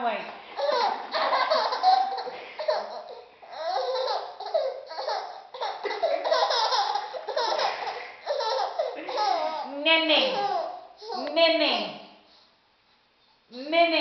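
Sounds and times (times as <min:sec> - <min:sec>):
baby laughing: 0:00.5 - 0:11.3.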